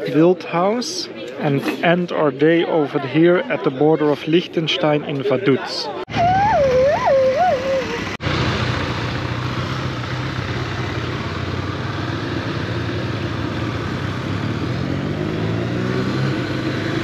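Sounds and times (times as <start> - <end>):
motorcycle engine accelerating: 6.1 - 17.0.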